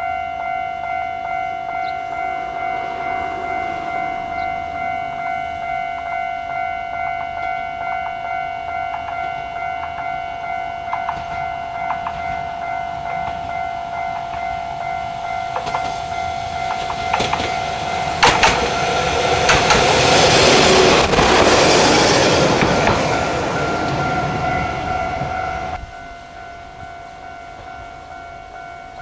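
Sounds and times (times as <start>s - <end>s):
railbus passing: 0.0s - 29.0s
high-pitched drone: 0.6s - 8.2s
wheels clicking over rail joints: 7.0s - 25.8s.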